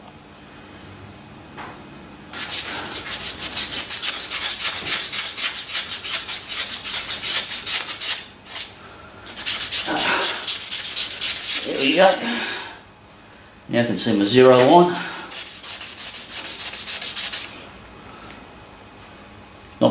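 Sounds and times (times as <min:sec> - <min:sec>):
abrasive cloth rubbing metal: 0:02.4 - 0:08.7, 0:09.3 - 0:12.4, 0:14.3 - 0:17.6.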